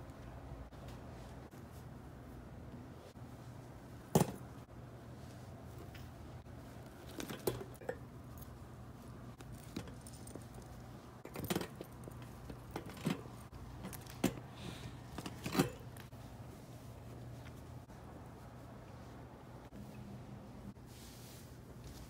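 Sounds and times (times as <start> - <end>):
soft rustling: 5.0 - 7.3, 14.9 - 20.0, 20.6 - 22.0
wire basket clicks and rattles: 9.4 - 14.5.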